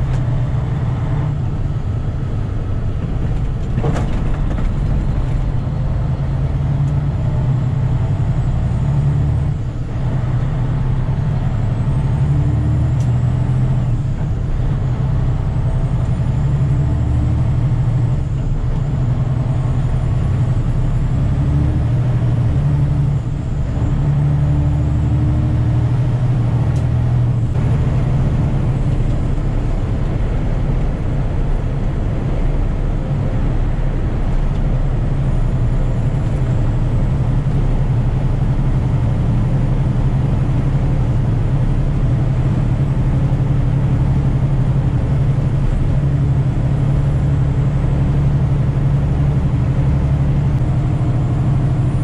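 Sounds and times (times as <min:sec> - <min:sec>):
truck diesel engine rumbling: 0:00.0 - 0:52.0.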